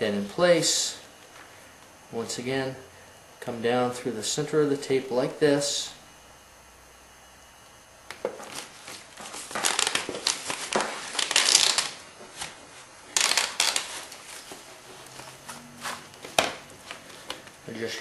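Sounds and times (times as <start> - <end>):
plastic tape crinkling: 8.4 - 17.5.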